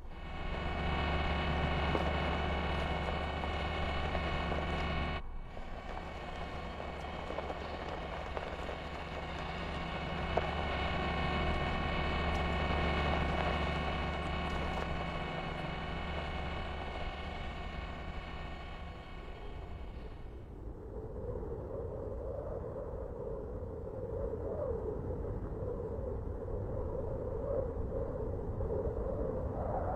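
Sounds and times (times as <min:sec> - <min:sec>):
low rumbling drone: 0:00.0 - 0:21.7.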